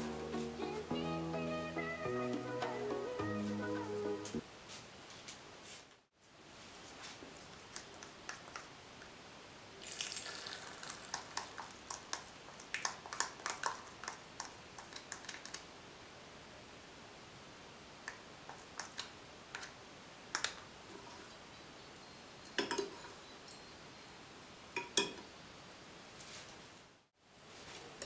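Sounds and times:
spoon tapping metal spoon: 0:22.5 - 0:23.7, 0:24.8 - 0:25.2.

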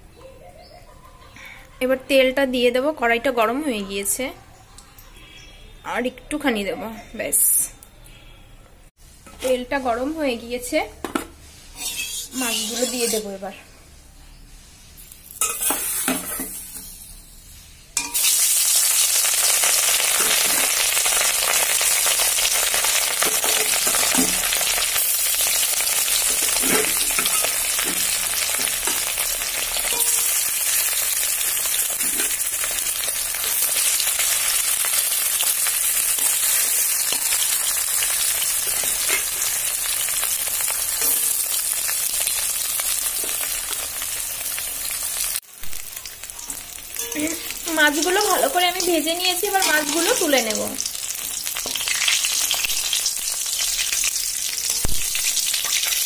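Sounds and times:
spatula scraping a pan: 0:11.3 - 0:13.4, 0:14.5 - 0:17.3, 0:26.1 - 0:32.8, 0:33.4 - 0:39.6
fish sizzling in hot oil: 0:11.7 - 0:13.4, 0:14.9 - 0:56.0.

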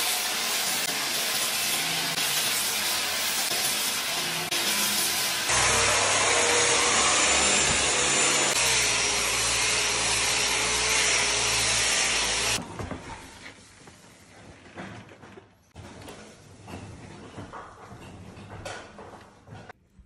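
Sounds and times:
orbital sander grinding wood: 0:00.0 - 0:12.6.

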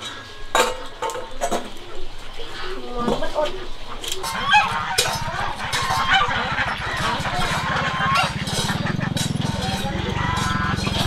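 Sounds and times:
ducks and geese honking and quacking: 0:00.0 - 0:11.0
low rapid pulsing drone: 0:04.4 - 0:11.0.

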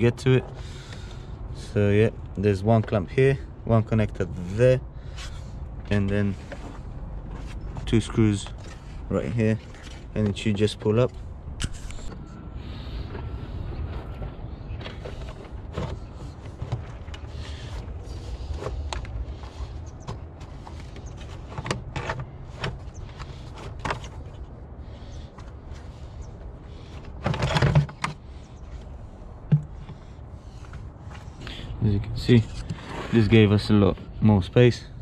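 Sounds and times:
plastic box scraping rustle: 0:26.7 - 0:28.2.

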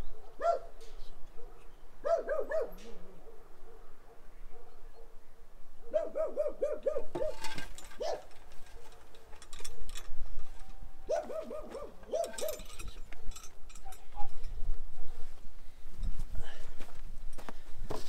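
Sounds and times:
knocks and rustling: 0:07.1 - 0:14.5.

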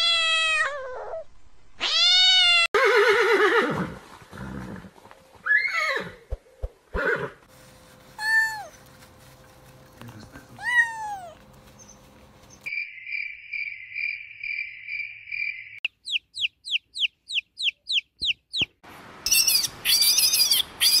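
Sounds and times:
kitten meowing: 0:00.0 - 0:01.2, 0:01.8 - 0:02.7, 0:10.6 - 0:11.4
chicks peeping: 0:16.0 - 0:18.7.

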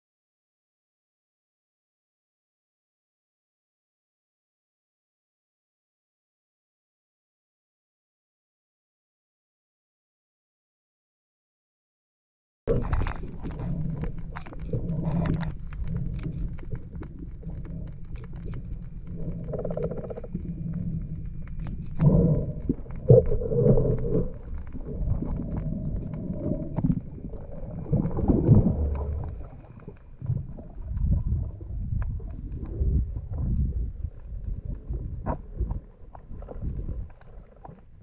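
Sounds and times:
underwater clicks: 0:12.7 - 0:38.0
underwater rumble of moving water: 0:12.7 - 0:38.0.

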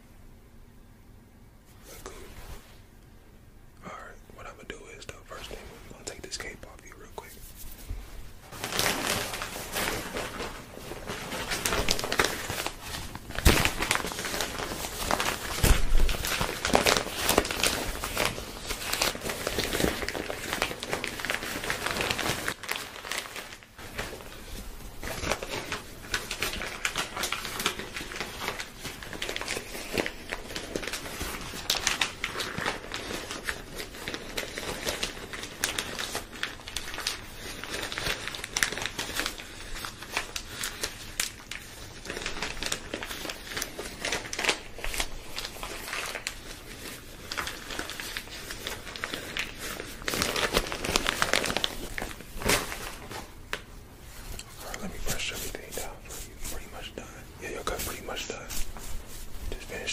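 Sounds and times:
fabric rubbing on microphone: 0:01.7 - 0:02.8, 0:05.3 - 0:13.2, 0:54.0 - 0:59.9.

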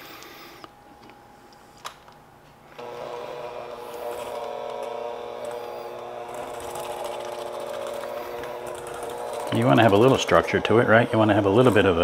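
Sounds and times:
electric hand mixer whining: 0:02.8 - 0:12.0.

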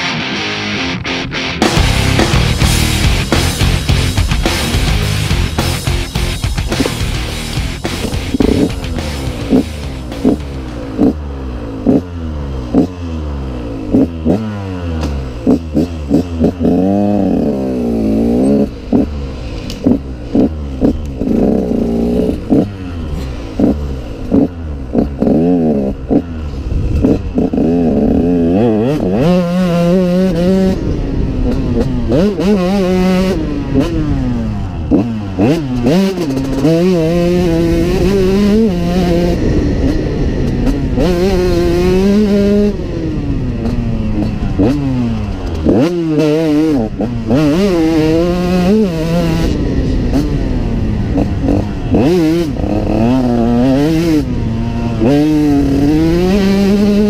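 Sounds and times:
motorcycle engine revving: 0:00.0 - 0:57.0
short thumps: 0:01.6 - 0:10.8.

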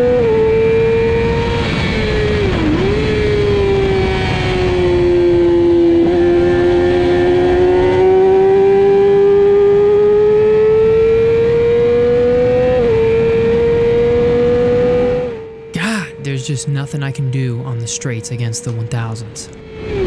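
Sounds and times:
motorcycle engine at high revs: 0:00.0 - 0:15.7.

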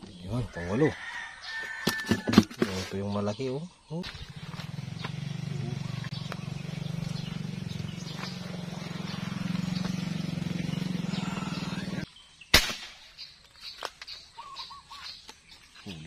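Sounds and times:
low pulsing drone: 0:04.2 - 0:12.1
air rifle shot: 0:12.5 - 0:13.1.

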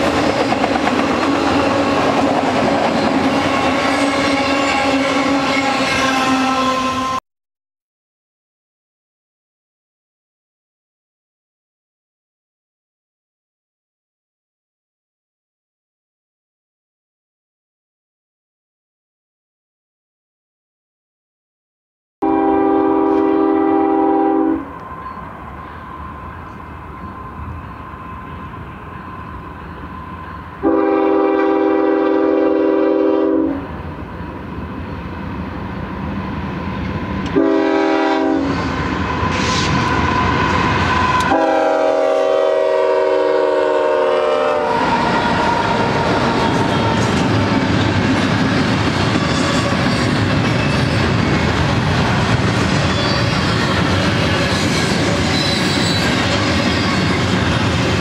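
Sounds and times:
train rumble and wheel clatter: 0:00.0 - 0:07.2, 0:22.6 - 0:58.0
locomotive air horn chord: 0:03.6 - 0:07.2, 0:22.2 - 0:24.8, 0:30.6 - 0:33.7, 0:37.3 - 0:38.6, 0:41.0 - 0:47.2.

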